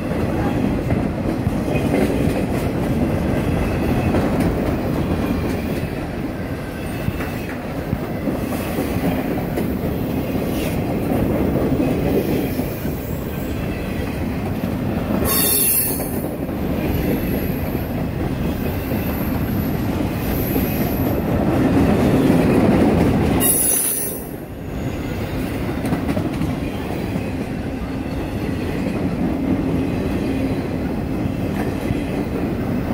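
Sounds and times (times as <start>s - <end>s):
freight train wheels rattling: 0.0s - 32.9s
train wheels screeching: 15.2s - 21.3s, 23.3s - 28.8s.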